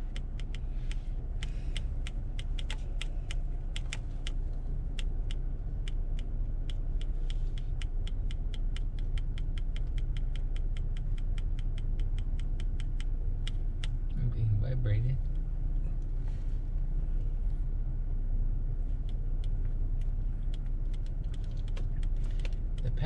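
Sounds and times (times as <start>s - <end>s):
car engine idling: 0.0s - 23.0s.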